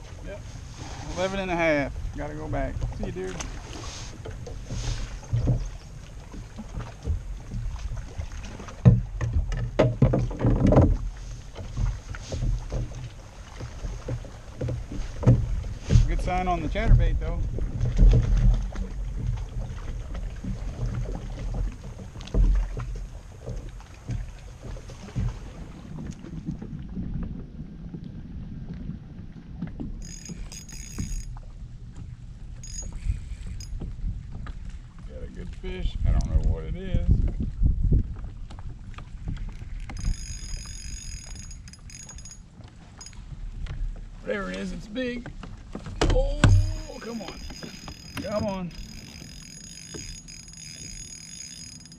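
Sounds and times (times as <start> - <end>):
wind rumble on microphone: 0.0 - 44.3
waves lapping against kayak hull: 0.0 - 51.9
fishing gear knocking and rattling: 4.2 - 7.8, 8.5 - 19.7, 30.0 - 31.5, 32.6 - 34.6, 39.3 - 44.0, 45.2 - 51.9
wind on microphone: 24.0 - 42.2
high-pitched buzzing whir: 46.5 - 51.9.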